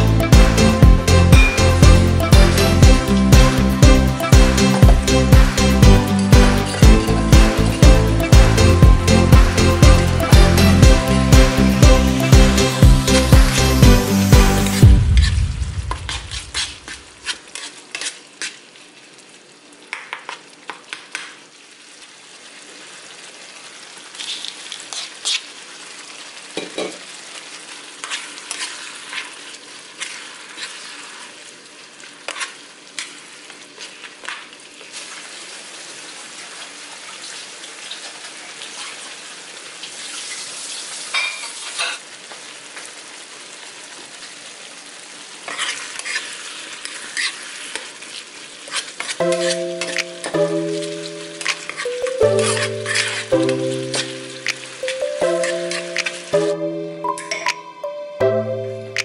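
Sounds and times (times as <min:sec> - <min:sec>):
sauce sizzling in a frying pan: 0:00.0 - 0:57.3
metal spoon scraping a pan: 0:15.1 - 0:18.6, 0:24.2 - 0:25.5, 0:28.0 - 0:31.4, 0:32.3 - 0:33.2, 0:41.2 - 0:42.0, 0:45.4 - 0:56.3.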